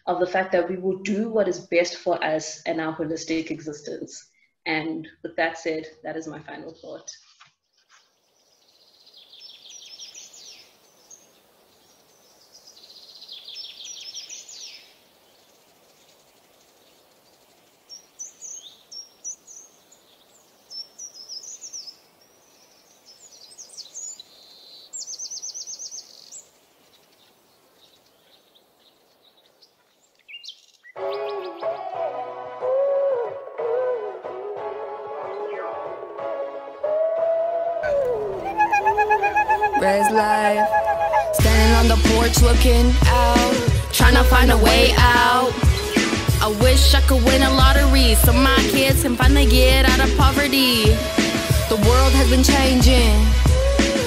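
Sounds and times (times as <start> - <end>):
birds singing: 6.4 - 31.9, 37.9 - 53.8
faint steady hiss: 8.3 - 30.8
music: 31.0 - 54.0.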